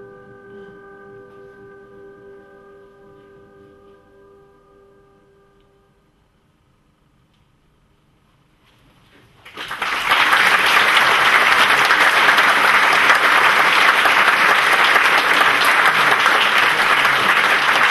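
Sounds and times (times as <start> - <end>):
audience applauding: 9.4 - 17.9.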